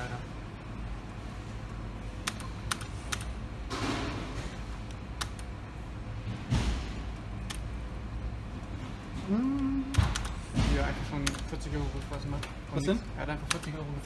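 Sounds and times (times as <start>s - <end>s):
low room hum: 0.0s - 14.0s
sharp clicks: 2.2s - 3.3s, 4.9s - 5.5s, 13.4s - 13.8s.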